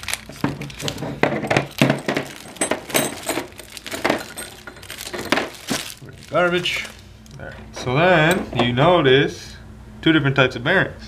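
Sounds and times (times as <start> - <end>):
metal bearing shells clinking: 1.7 - 6.0.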